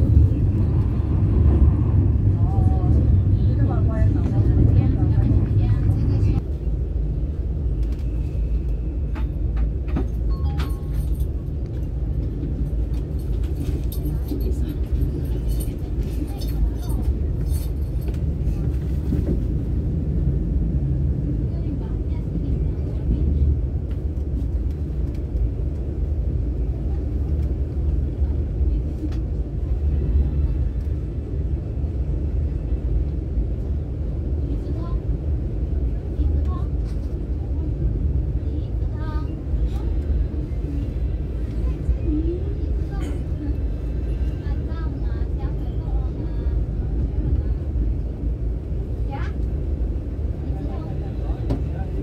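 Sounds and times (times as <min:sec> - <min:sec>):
train cabin rumble: 0:00.0 - 0:52.0.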